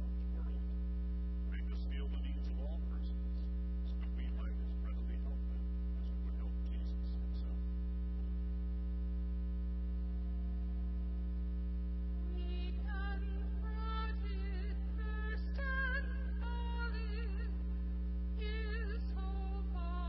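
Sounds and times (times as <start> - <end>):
low electrical hum: 0.0 - 20.0
faint voice: 1.5 - 7.6
hymn singing: 12.2 - 17.6, 18.4 - 20.0.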